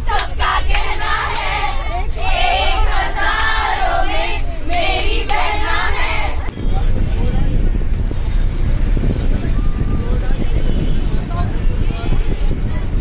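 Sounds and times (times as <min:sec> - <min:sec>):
girls singing together: 0:00.0 - 0:06.5
bus engine: 0:00.0 - 0:13.0
road rumble: 0:00.0 - 0:13.0.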